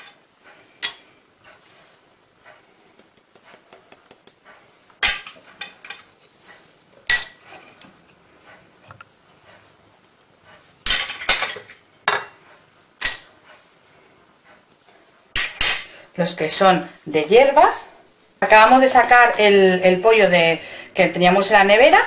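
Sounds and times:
ceramic spoons clinking on plate: 0.8s - 1.2s, 7.1s - 7.5s.

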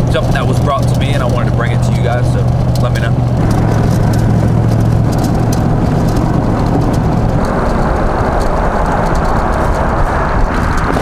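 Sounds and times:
tyre and road noise: 0.0s - 11.0s
vehicle engine hum: 0.0s - 11.0s
wind rushing: 2.6s - 11.0s.

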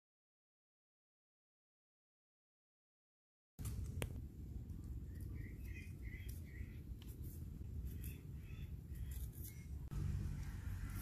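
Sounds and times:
low steady hum: 3.6s - 11.0s
bird calling: 4.8s - 6.9s, 7.8s - 9.9s
blade scraping ginger skin: 5.1s - 11.0s.

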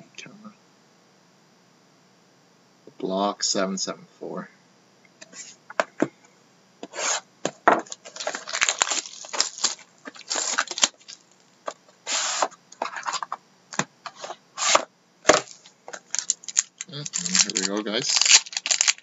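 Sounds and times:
shrink-wrap tearing and crinkling: 7.8s - 11.4s, 14.6s - 19.0s.

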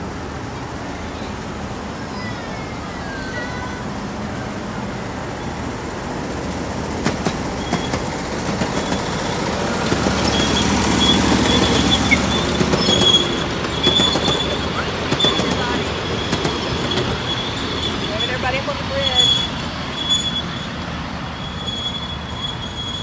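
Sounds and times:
train wheels clicking over rail joints: 5.4s - 23.0s
high wheel squeal: 7.1s - 23.0s.

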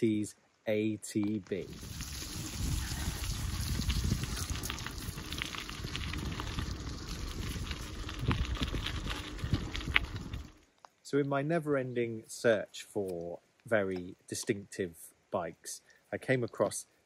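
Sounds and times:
bicycle tyres on wet gravel: 1.5s - 10.7s.

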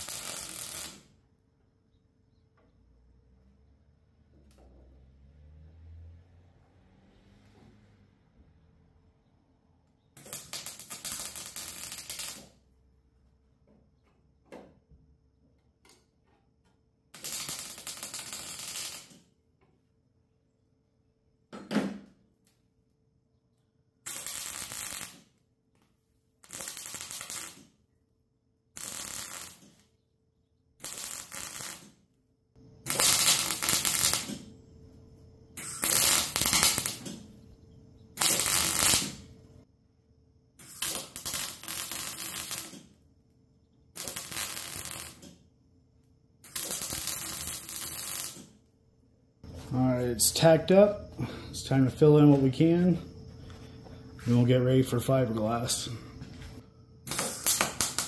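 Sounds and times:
welding arc bursts: 0.0s - 1.1s, 10.2s - 12.6s, 17.1s - 19.2s, 24.0s - 25.3s, 26.4s - 27.8s, 28.8s - 29.8s, 30.8s - 32.0s, 32.8s - 34.5s, 35.6s - 37.2s, 38.2s - 39.3s, 40.6s - 42.9s, 44.0s - 45.4s, 46.4s - 48.6s, 57.1s - 58.0s.

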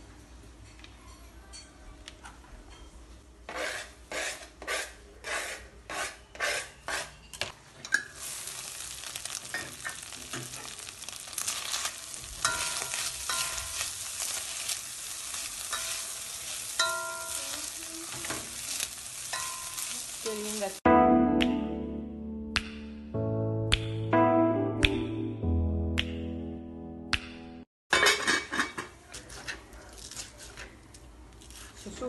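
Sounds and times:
spatula scraping a pan: 3.5s - 7.2s, 8.2s - 20.4s
meat sizzling in a pan: 8.1s - 20.8s.

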